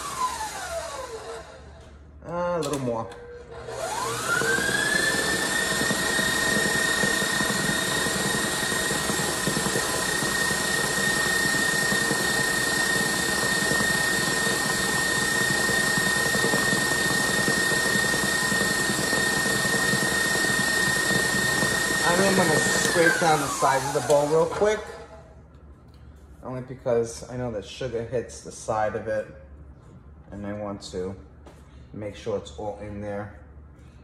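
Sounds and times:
stand mixer motor whining: 0.0 - 1.9, 3.4 - 25.2
whisk whipping in metal bowl: 3.7 - 25.0.

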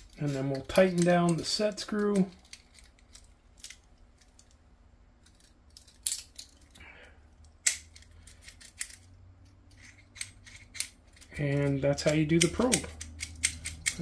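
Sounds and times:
small metal clicks and taps: 9.7 - 14.0.

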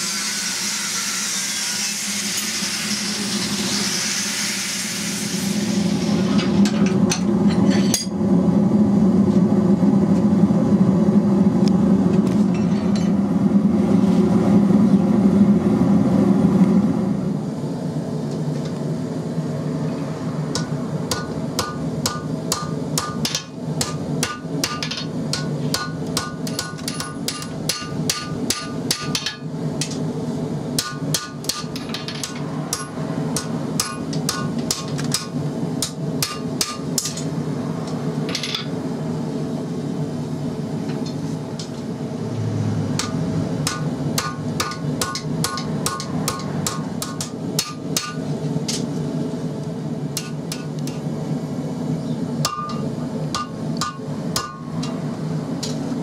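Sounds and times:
hammer striking metal on anvil: 6.4 - 8.2, 20.5 - 30.0, 30.8 - 37.3, 42.9 - 48.9, 50.2 - 51.1, 52.4 - 55.8.

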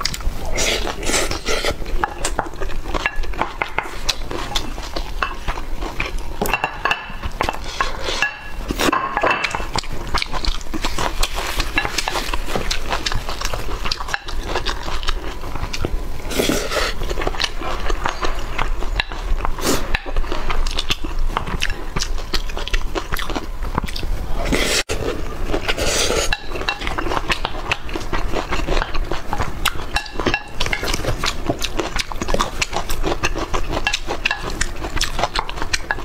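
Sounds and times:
utensils clinking against dishes: 6.4 - 9.7
chewing and biting: 9.7 - 36.0.

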